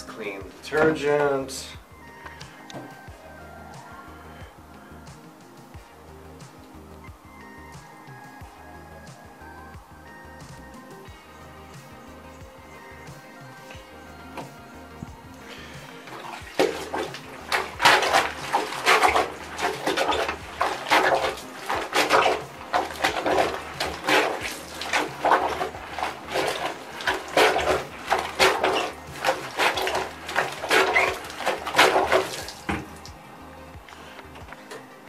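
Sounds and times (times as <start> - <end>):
plunger splashing in bucket water: 15.6 - 33.2.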